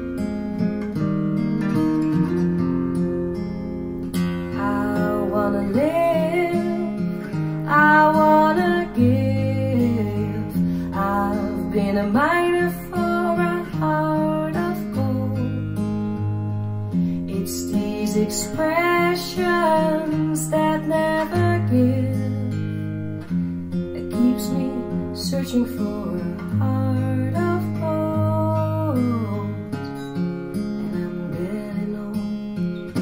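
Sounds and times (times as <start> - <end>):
strummed acoustic guitar: 0.0 - 33.0
person singing: 4.4 - 15.6, 17.3 - 22.5, 24.0 - 29.8, 30.8 - 32.4.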